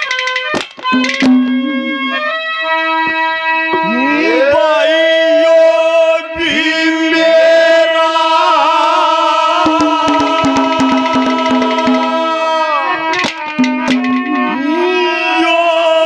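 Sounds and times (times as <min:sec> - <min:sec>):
hand drum strokes: 0:00.0 - 0:02.2, 0:09.6 - 0:14.7
harmonium holding notes: 0:00.1 - 0:04.4
gliding melody line: 0:00.9 - 0:02.3.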